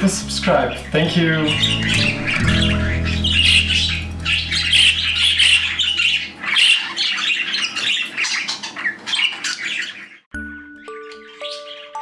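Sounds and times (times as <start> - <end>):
budgerigar chattering and squawking: 0.5 - 10.2.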